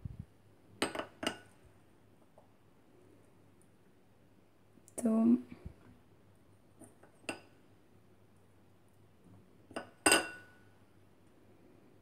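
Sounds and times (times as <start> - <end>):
dishware clinking: 9.8 - 10.6.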